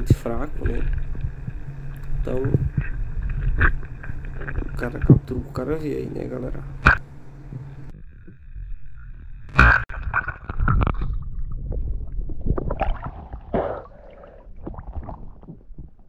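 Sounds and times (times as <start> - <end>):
muffled water gurgling and bubbling: 0.0 - 16.0
crackling clicks: 6.6 - 7.0.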